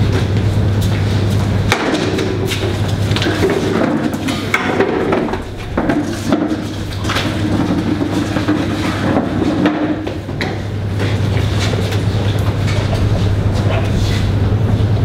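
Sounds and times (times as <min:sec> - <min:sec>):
steady low hum: 0:00.0 - 0:15.0
tables knocking and scraping: 0:01.7 - 0:11.2.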